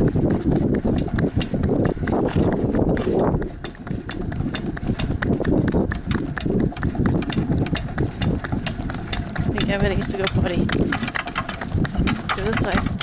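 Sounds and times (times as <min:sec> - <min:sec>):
cart rumbling: 0:00.0 - 0:13.0
hooves clip-clopping on tarmac: 0:00.0 - 0:13.0.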